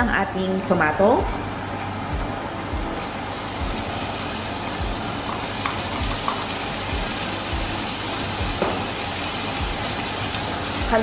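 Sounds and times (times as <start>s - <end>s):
vegetables sizzling in oil: 0.4s - 11.0s.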